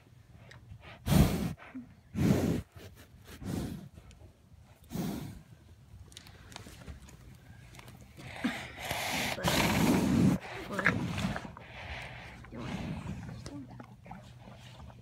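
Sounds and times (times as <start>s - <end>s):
horse blowing breath: 0.8s - 4.0s, 4.8s - 5.5s, 8.2s - 15.0s.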